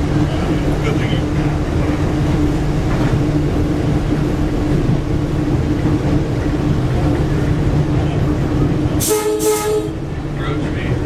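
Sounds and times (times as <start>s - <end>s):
railcar running hum and rumble: 0.0s - 11.0s.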